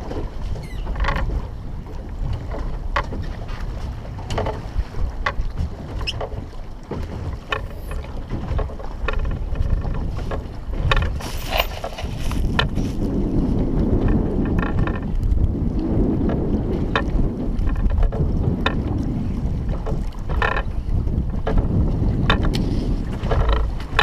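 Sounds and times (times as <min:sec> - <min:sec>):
choppy water against boat hull: 0:00.0 - 0:24.0
wind buffeting microphone: 0:00.0 - 0:24.0
sharp clicks and knocks: 0:06.0 - 0:12.8.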